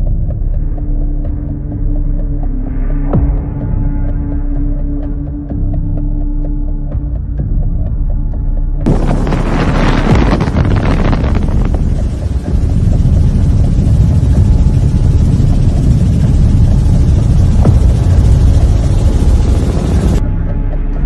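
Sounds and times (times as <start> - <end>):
aircraft wind and engine rumble: 8.9 - 20.9.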